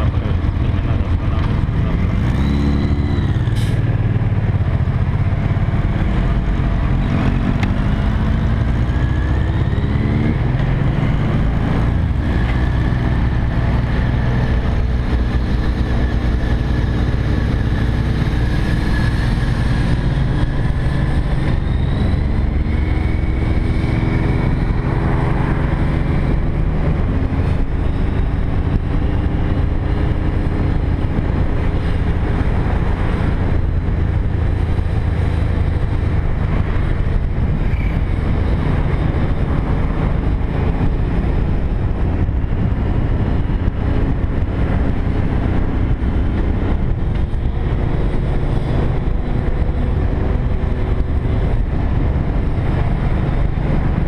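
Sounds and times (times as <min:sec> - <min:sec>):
motorcycle accelerating through gears: 0:00.0 - 0:54.0.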